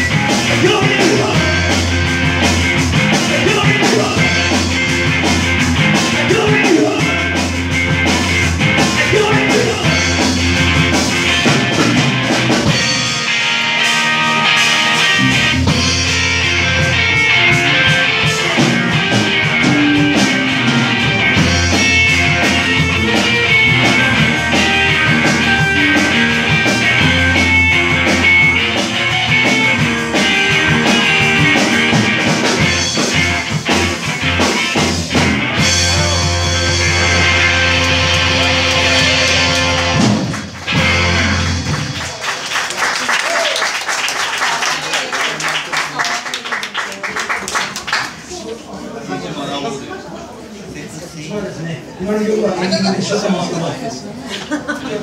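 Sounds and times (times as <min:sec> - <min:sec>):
electric guitars: 0:00.0 - 0:42.2
bass guitar: 0:00.0 - 0:42.3
drum kit: 0:00.0 - 0:42.6.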